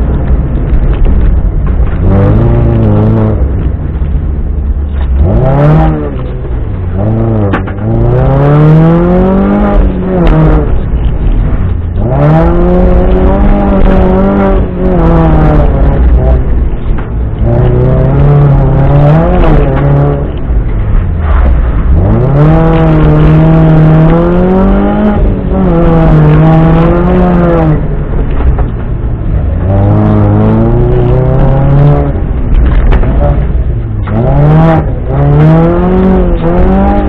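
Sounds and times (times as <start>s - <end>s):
car engine accelerating: 0.0s - 37.0s.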